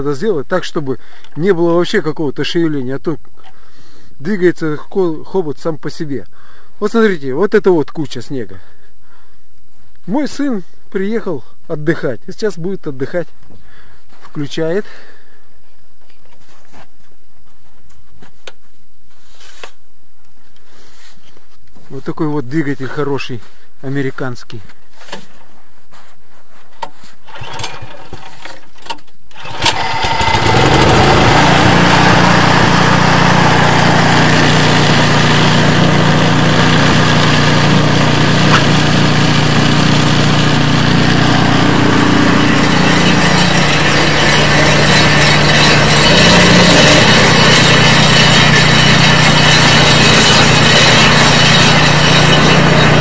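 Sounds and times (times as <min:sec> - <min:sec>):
snowblower engine running: 0:29.4 - 0:53.0.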